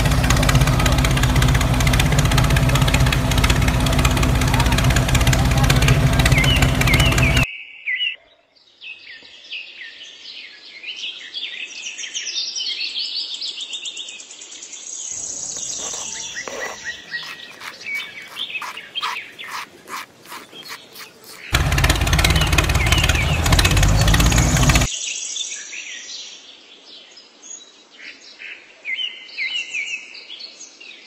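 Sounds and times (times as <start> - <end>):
small birds chirping: 0.0 - 7.5, 15.1 - 24.9.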